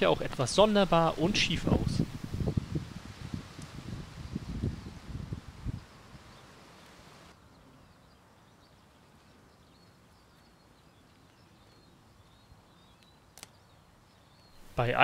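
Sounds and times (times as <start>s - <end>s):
small bird chirps: 5.7s - 14.7s.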